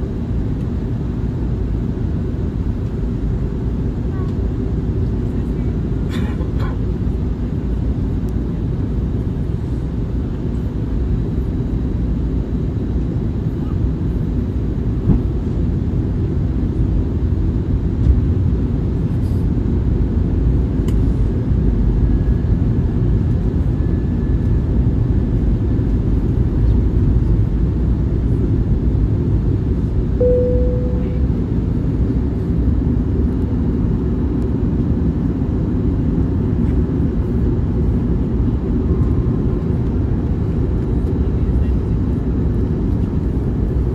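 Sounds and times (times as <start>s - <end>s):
jet engines rumbling in cabin: 0.0s - 43.9s
short single tone: 30.2s - 31.7s.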